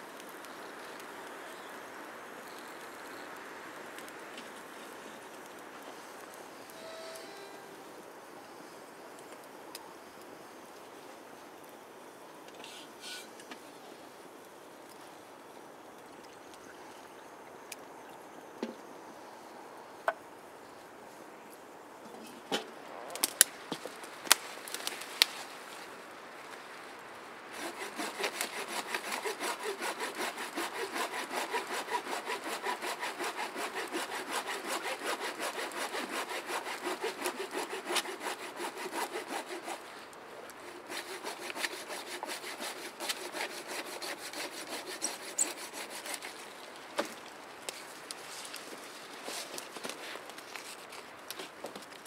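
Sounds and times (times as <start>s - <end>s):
hand saw cutting a branch: 27.5s - 48.6s.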